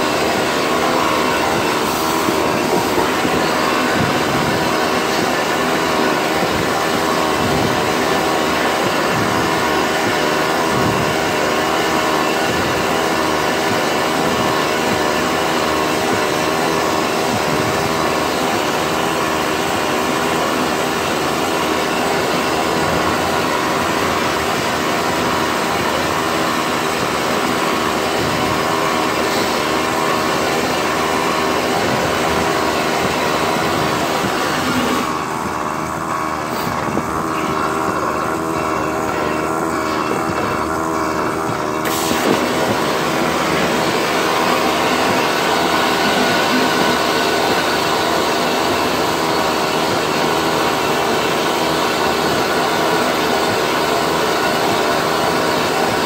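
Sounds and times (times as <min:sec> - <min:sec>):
wavering machine hum: 0:00.0 - 0:56.0
blast gun air rush: 0:41.8 - 0:46.8.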